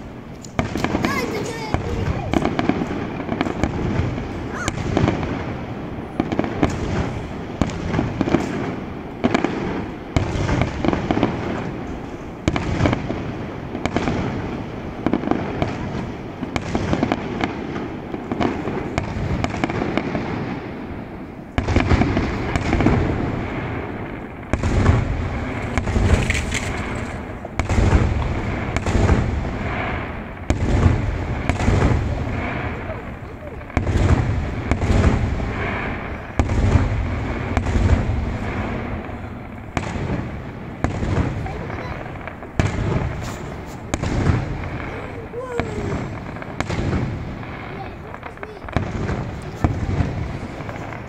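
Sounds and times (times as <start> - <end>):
firework shells bursting: 21.5 - 51.0.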